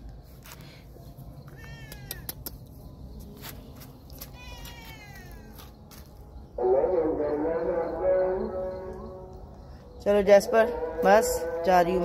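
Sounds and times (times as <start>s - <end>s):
cat meowing: 1.6s - 2.3s, 4.3s - 5.6s.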